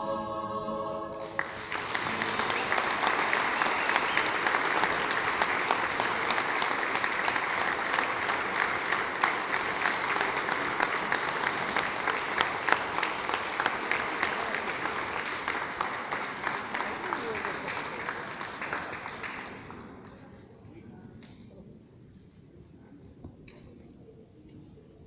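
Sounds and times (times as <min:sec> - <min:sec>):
audience applauding: 0:01.2 - 0:20.3.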